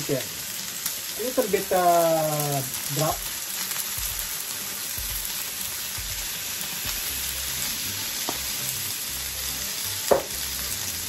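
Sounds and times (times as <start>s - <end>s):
chicken sizzling on grill pan: 0.0s - 11.0s.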